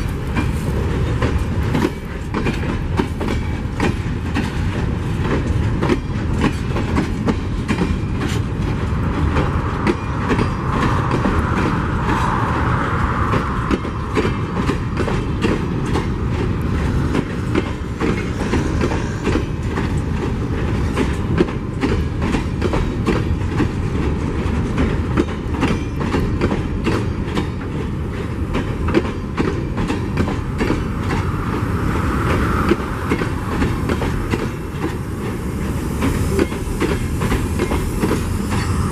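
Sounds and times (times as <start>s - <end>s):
wheels clicking over rail joints: 0.0s - 38.9s.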